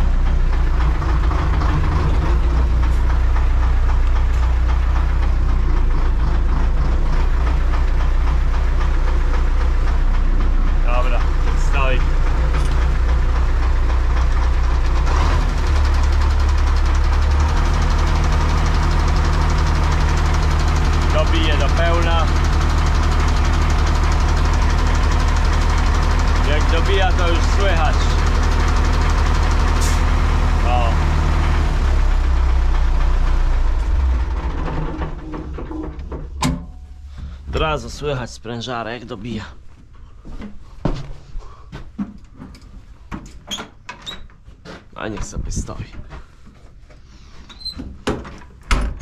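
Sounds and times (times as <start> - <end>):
tractor diesel engine running: 0.0 - 40.0.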